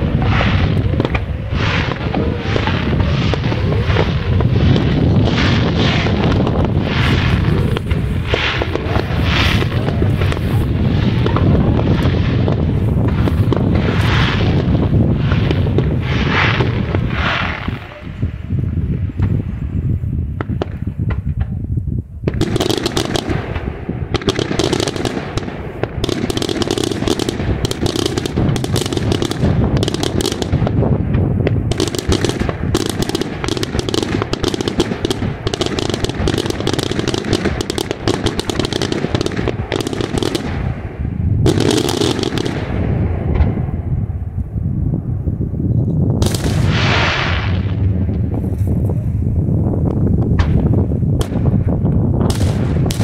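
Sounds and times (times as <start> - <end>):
low rumble: 0.0 - 22.5, 37.4 - 53.0
fireworks bangs and crackling: 0.0 - 53.0.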